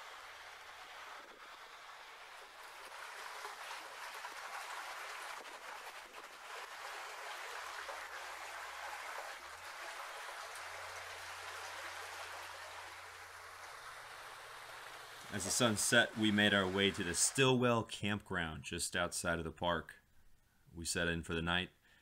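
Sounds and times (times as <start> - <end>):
stream running over rock: 0.0 - 17.5.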